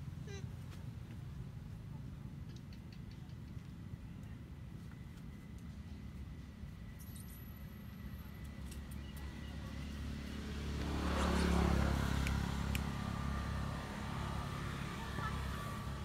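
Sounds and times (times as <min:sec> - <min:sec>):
passing vehicle engine hum: 0:07.6 - 0:16.0.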